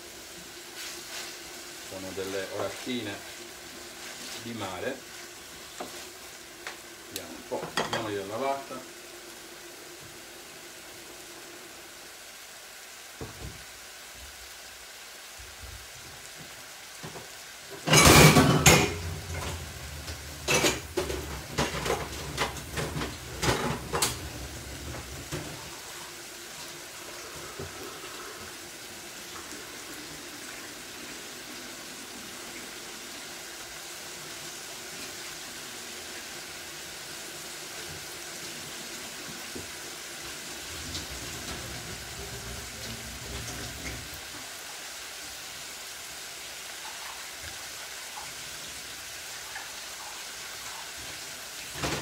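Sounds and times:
vegetables sizzling in frying pan: 0.0s - 52.0s
pots and dishes clattering: 7.5s - 8.3s, 17.0s - 25.8s, 40.9s - 44.1s, 51.7s - 52.0s
crockery and utensils clinking: 7.6s - 8.2s, 17.8s - 19.6s, 20.4s - 24.3s.

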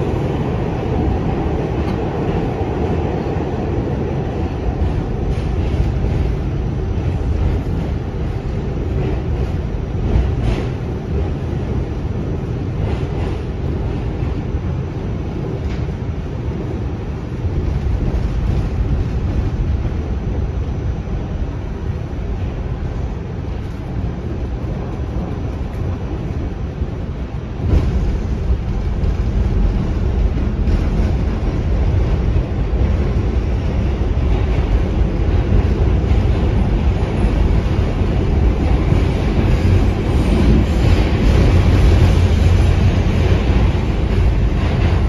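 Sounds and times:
train wheels rumbling on track: 0.0s - 45.0s
sharp clacks of train wheels: 4.7s - 11.7s.

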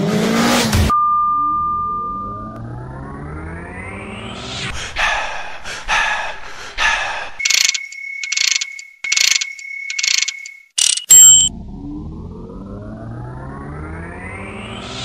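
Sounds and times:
steady high beep: 0.9s - 4.3s, 7.4s - 11.5s
rising sweep effect: 1.2s - 4.7s, 11.5s - 15.0s.

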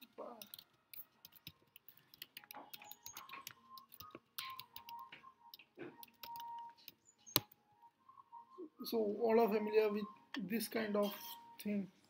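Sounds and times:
keyboard typing clicks: 0.0s - 7.6s.

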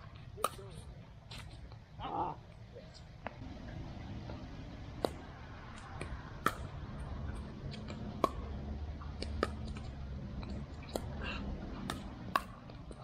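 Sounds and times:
low steady rumble: 3.4s - 13.0s.

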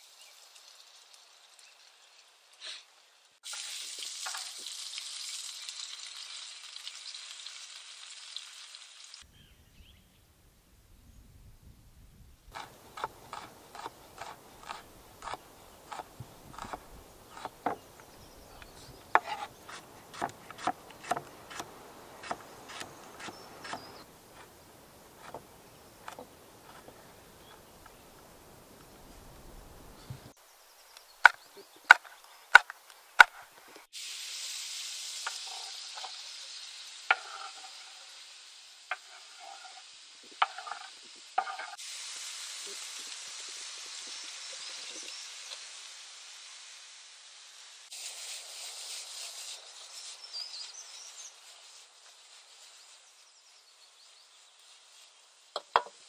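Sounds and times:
vegetables sizzling in pan: 0.0s - 9.5s, 12.5s - 56.0s
knife chopping on wooden board: 12.6s - 17.8s, 19.1s - 24.5s, 25.2s - 25.4s.

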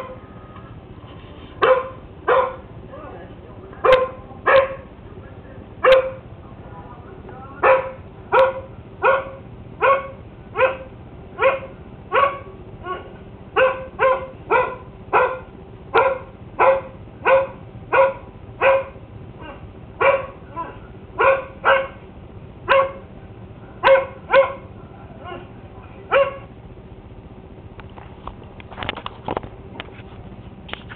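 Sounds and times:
dog barking: 1.6s - 2.7s, 3.8s - 4.9s, 5.8s - 6.2s, 7.6s - 22.0s, 22.7s - 23.1s, 23.8s - 26.5s
handling rustle and clatter: 27.9s - 30.9s.

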